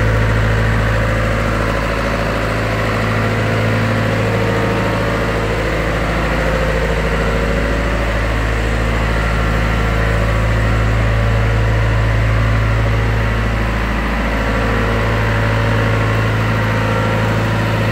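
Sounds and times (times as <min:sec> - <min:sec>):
diesel engine idling: 0:00.0 - 0:17.9.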